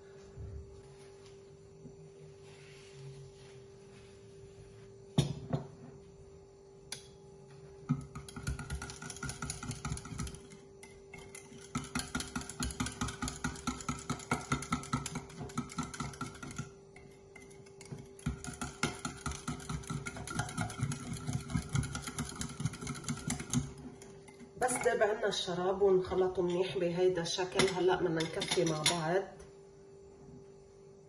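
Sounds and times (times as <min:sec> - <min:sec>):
faint steady hum: 0:00.0 - 0:31.0
whisk rattling in a ceramic mug: 0:07.9 - 0:25.2, 0:27.6 - 0:29.0.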